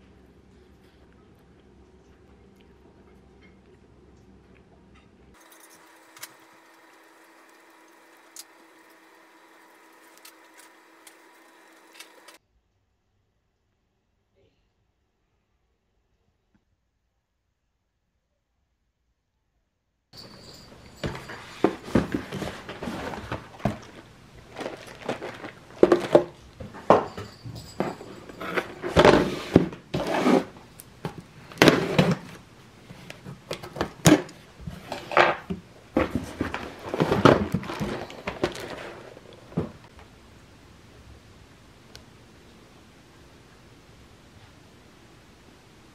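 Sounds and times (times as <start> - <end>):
cardboard box rustling and scraping: 21.0 - 26.4, 27.9 - 30.6, 36.0 - 39.8.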